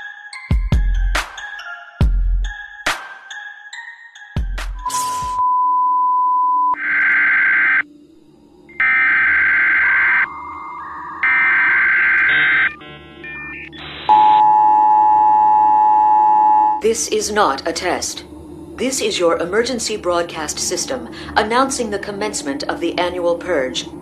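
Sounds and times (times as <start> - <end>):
electronic data screeches: 11.2 - 14.4
two-tone alert signal: 11.2 - 16.8
steady alert beep: 11.3 - 16.8.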